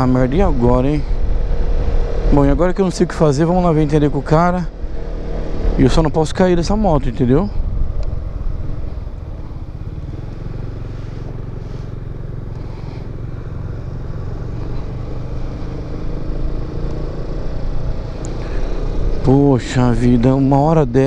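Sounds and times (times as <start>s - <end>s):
wind and road noise: 0.0s - 21.0s
scooter engine running: 7.6s - 19.7s.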